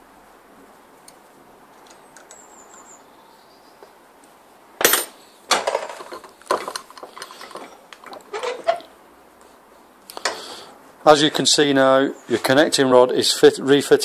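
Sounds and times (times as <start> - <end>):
sharp metal clack: 4.8 - 5.7.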